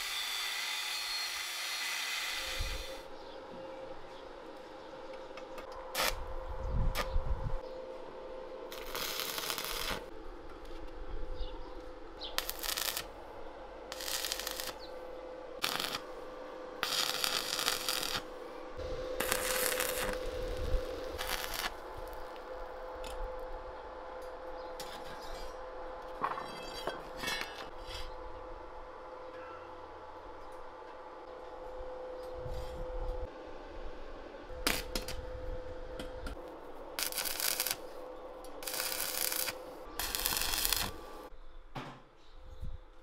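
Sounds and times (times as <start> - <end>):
welder hum: 0.0 - 3.2, 5.4 - 11.0, 11.8 - 23.6, 32.2 - 41.3
welding arc crackle: 6.0 - 6.2, 8.7 - 10.1, 12.4 - 13.2, 13.9 - 14.9, 15.6 - 16.1, 16.8 - 18.3, 19.2 - 22.5, 37.0 - 37.8, 38.6 - 41.3.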